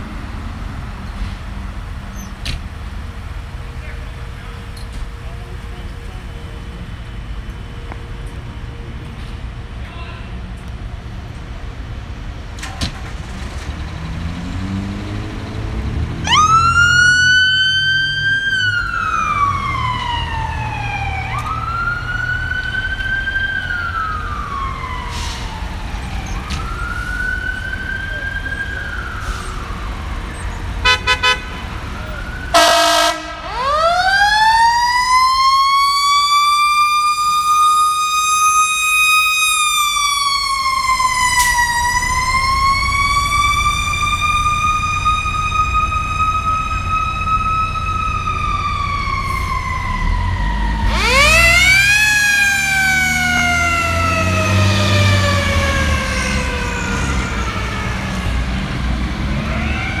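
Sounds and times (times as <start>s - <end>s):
truck engines rumbling: 0.0s - 60.0s
fire truck siren wailing: 11.4s - 60.0s
fire truck horn blasts: 30.8s - 31.8s, 32.5s - 33.6s.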